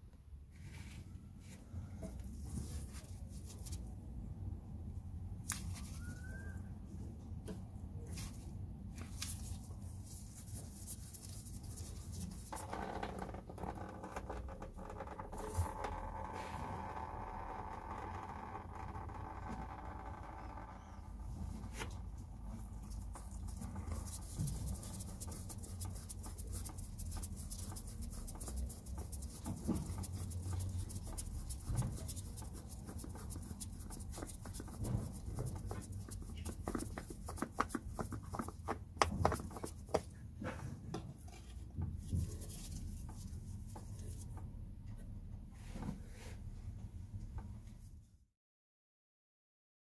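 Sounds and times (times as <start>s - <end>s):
gloved hand rubbing oil filter: 21.6s - 40.0s.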